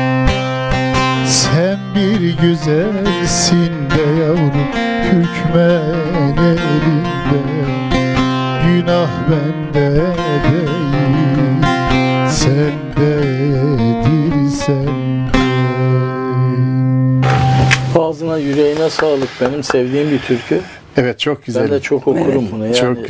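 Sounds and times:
strummed long-necked lute: 0.0 - 18.0
man singing folk song: 1.1 - 17.2.

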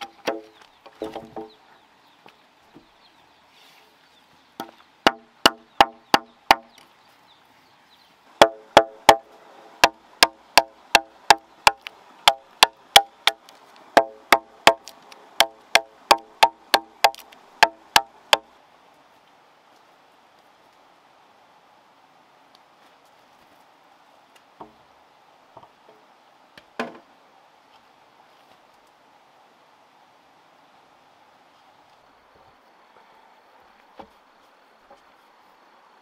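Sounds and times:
machete chopping wooden log: 0.0 - 1.5, 4.6 - 6.7, 8.4 - 13.4, 14.0 - 18.4.

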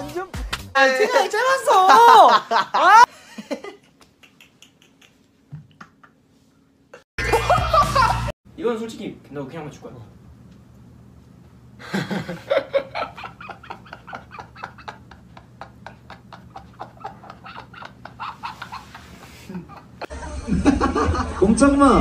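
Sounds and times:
young man laughing hard: 1.7 - 6.2, 7.2 - 8.3, 11.8 - 21.6
people talking: 20.2 - 22.0.

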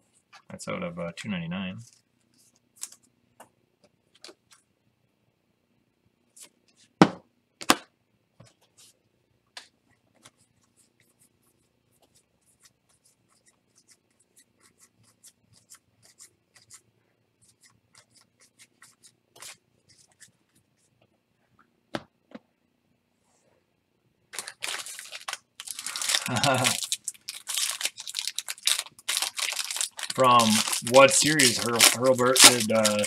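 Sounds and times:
cards handled with light clicks: 2.8 - 3.0.

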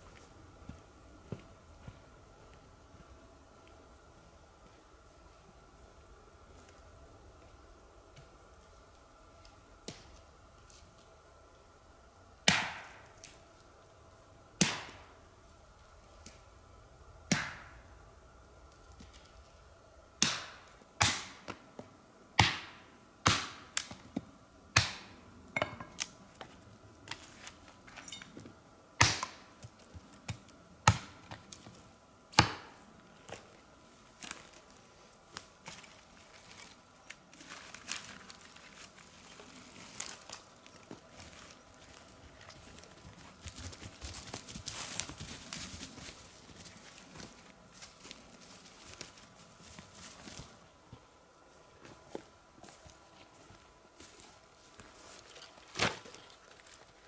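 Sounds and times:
axe chopping wood: 12.5 - 13.0, 32.3 - 32.8.

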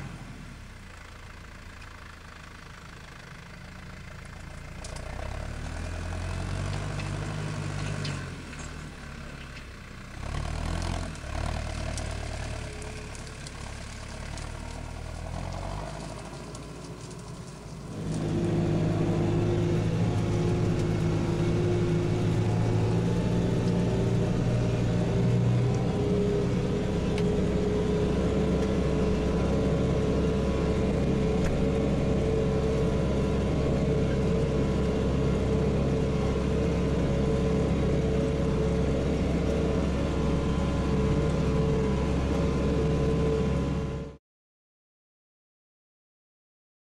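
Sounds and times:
tractor diesel engine under load: 0.0 - 44.2.

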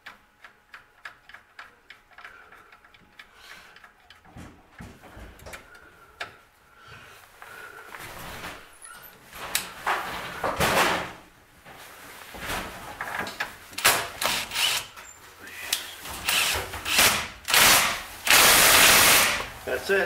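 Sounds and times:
cordless power tool bursts on metal: 13.8 - 14.9, 16.2 - 19.5.

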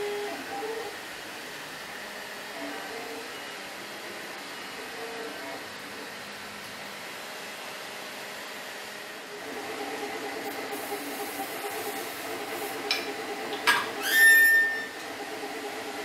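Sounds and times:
steady background noise: 0.0 - 16.0
spring ringing squeak: 13.7 - 15.0.

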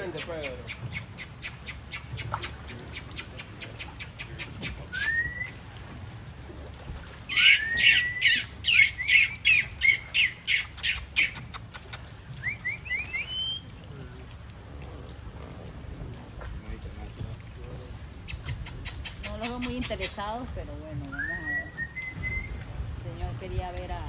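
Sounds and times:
short rising whistles: 21.2 - 22.6.

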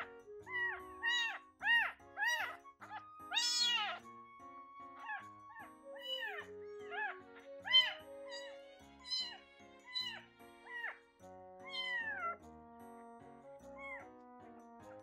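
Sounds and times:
background music: 0.0 - 15.0
kitten mewing: 0.5 - 2.6, 3.3 - 4.0, 5.0 - 11.0, 11.6 - 12.4.

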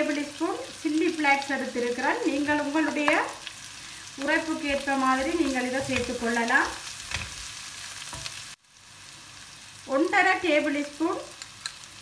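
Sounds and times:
vegetables sizzling in hot oil: 0.0 - 12.0
person speaking: 4.2 - 6.8
wooden spoon stirring: 4.3 - 6.5.

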